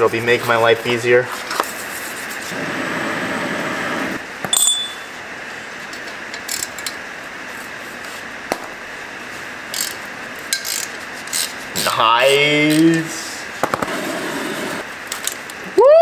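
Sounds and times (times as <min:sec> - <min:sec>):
sharp metallic clink: 0:04.5 - 0:05.2
ratchet wrench clicking: 0:06.4 - 0:07.0, 0:09.7 - 0:11.9.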